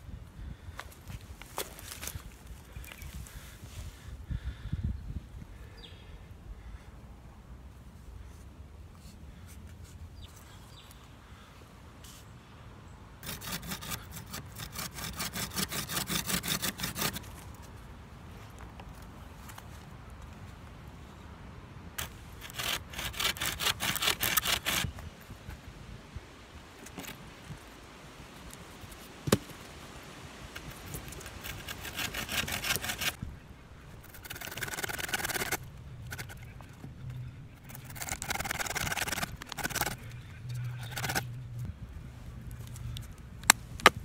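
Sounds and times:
saw cutting through sapling: 13.2 - 17.4, 22.0 - 25.0, 30.6 - 41.6.

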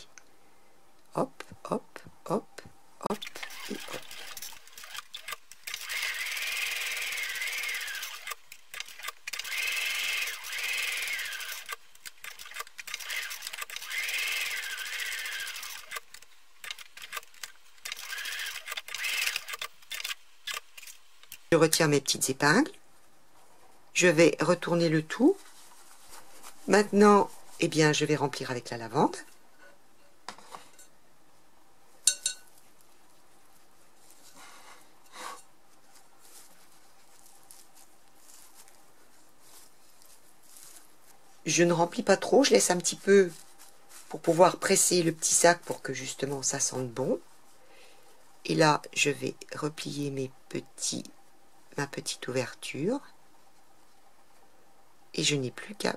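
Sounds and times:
sewing machine motor whine: 3.4 - 16.1, 17.8 - 20.1
small clicks: 11.2 - 21.4
dried buds rustling into fabric: 22.9 - 48.6.

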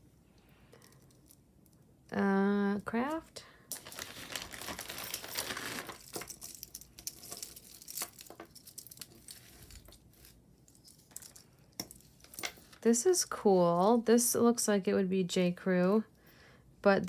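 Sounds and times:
plastic bag crinkling: 3.7 - 10.4.

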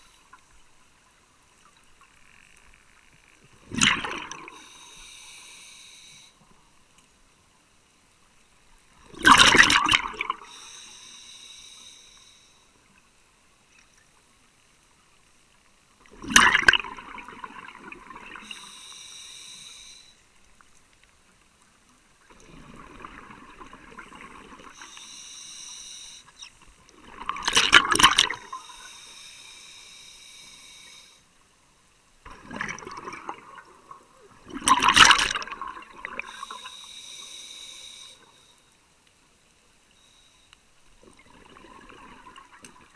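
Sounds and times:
exhaled bubbles rushing: 3.7 - 4.6, 9.1 - 10.4, 16.1 - 18.5, 22.3 - 24.8, 27.0 - 28.6, 32.3 - 36.3, 41.1 - 42.9
regulator hiss: 4.5 - 6.6, 10.4 - 12.9, 18.3 - 20.4, 24.7 - 26.6, 28.3 - 31.4, 36.2 - 38.8, 39.8 - 40.7.

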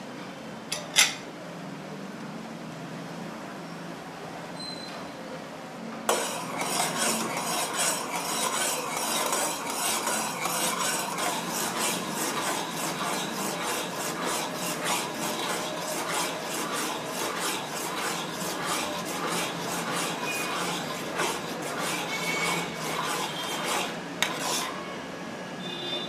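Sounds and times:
metal spoon scraping a pan: 6.1 - 24.8.

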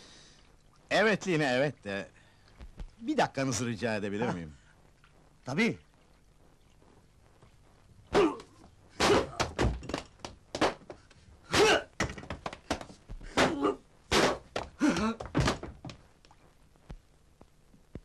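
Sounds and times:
men grunting: 8.1 - 9.6, 14.8 - 15.3
punch impacts: 9.0 - 10.0, 11.5 - 15.8.

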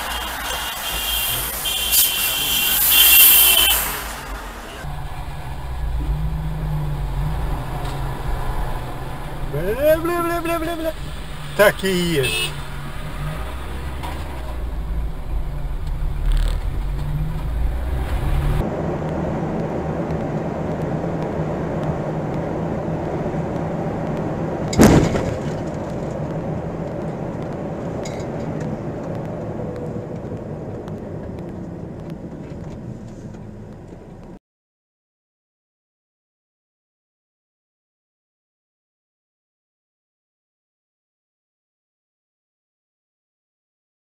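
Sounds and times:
road noise at highway speed: 0.0 - 34.4
low engine rumble: 4.0 - 34.4
sharp loud bang: 24.8 - 25.6.

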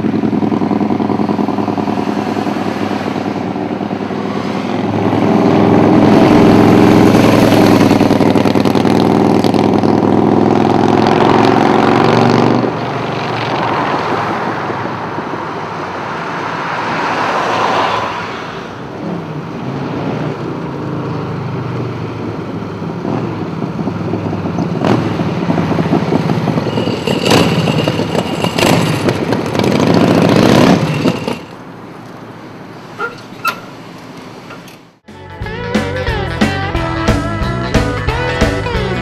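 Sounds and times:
motorcycle engine: 0.0 - 16.1, 19.0 - 39.0.

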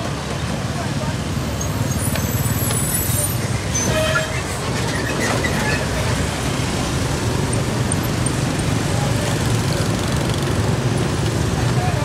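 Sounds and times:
passing traffic rumble: 0.0 - 12.0
crowd chatter: 11.5 - 12.0.

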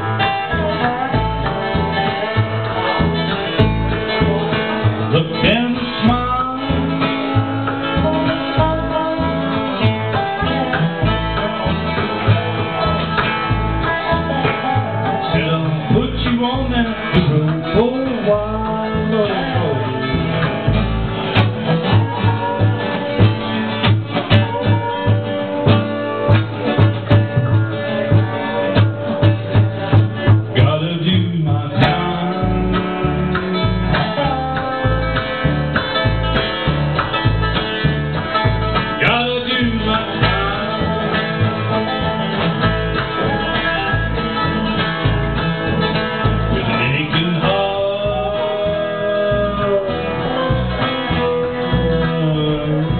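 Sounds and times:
bluegrass band playing: 0.0 - 52.9
plucked bass beat: 0.0 - 52.9
man singing: 5.0 - 12.8, 13.8 - 25.3, 30.4 - 35.4, 38.9 - 42.0, 46.4 - 52.9.

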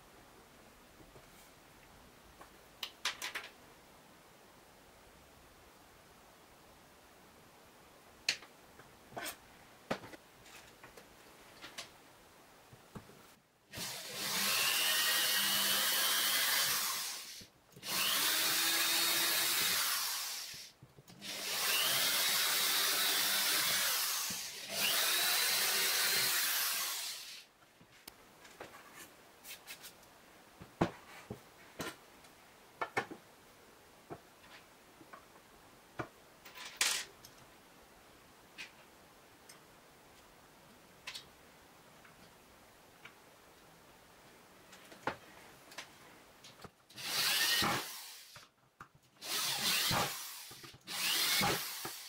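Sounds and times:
cordless drill boring into wood: 13.8 - 27.4, 47.0 - 48.4, 49.2 - 52.0.

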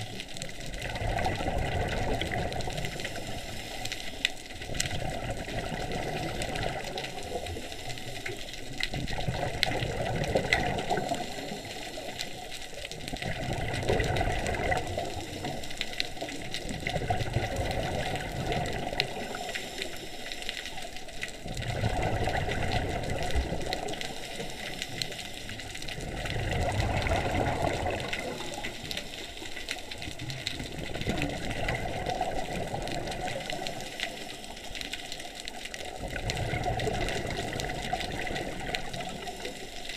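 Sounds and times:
exhaled bubbles underwater: 0.0 - 39.9.

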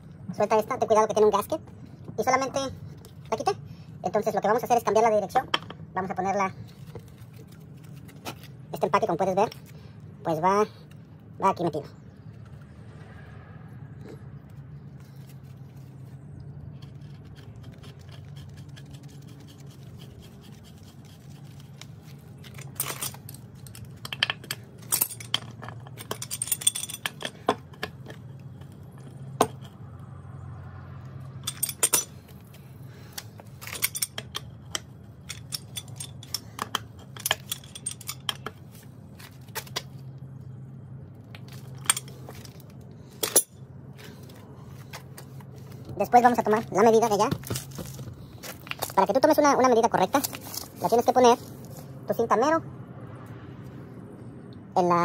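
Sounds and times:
steady low hum: 0.0 - 55.0
wrench clicking and scraping on pipe: 22.4 - 29.8, 31.4 - 38.6.

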